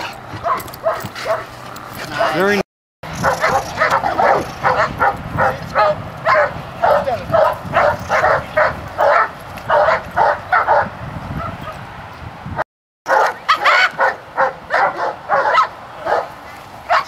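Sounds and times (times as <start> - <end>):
dog barking: 0.4 - 1.5, 2.1 - 11.8, 13.1 - 17.0.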